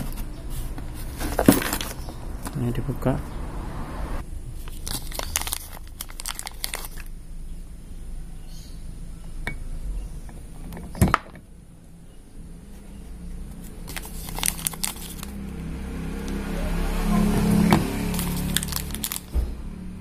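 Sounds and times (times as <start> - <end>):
engine hum: 0.0 - 20.0
metal parts clicking and clacking: 1.2 - 2.1
plastic bag crinkling: 4.6 - 7.1, 13.6 - 15.4, 18.0 - 19.4.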